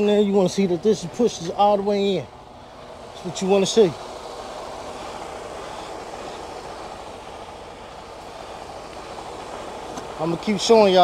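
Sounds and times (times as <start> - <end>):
truck diesel engine idling: 0.0 - 11.0.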